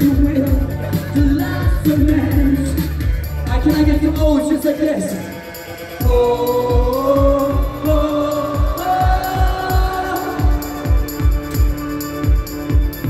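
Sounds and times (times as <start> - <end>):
person singing: 0.0 - 11.3.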